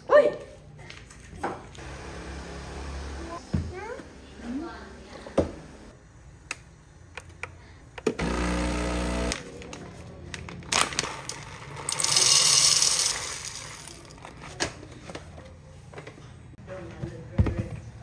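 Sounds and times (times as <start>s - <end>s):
espresso machine motor whir: 1.8s - 3.2s, 8.1s - 9.5s
coffee beans rattling into hopper: 10.7s - 14.3s.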